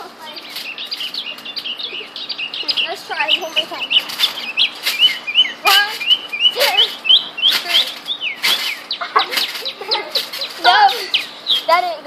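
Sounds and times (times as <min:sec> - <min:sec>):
trampoline spring squeaks: 0:00.0 - 0:12.0
rapid high chirps: 0:00.3 - 0:12.0
trampoline landing thumps: 0:02.8 - 0:12.0.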